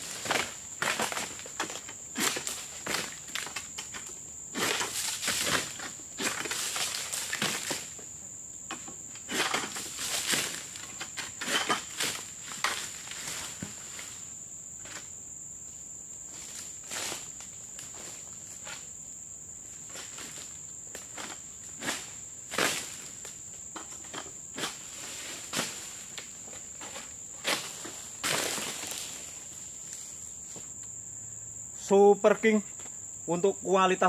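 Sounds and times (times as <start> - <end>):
palm fronds rustling and crunching: 0.0 - 19.0, 19.6 - 30.8.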